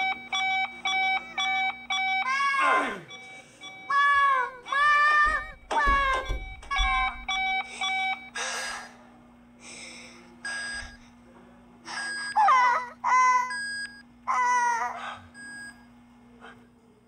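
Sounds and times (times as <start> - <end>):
cartoon cat cries: 14.3 - 15.0.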